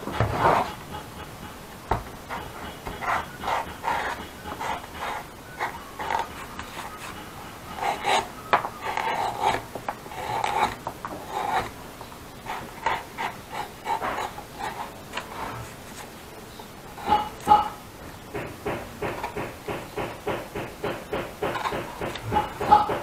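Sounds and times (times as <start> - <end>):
hand tool scraping leather: 2.3 - 11.8, 12.5 - 16.1.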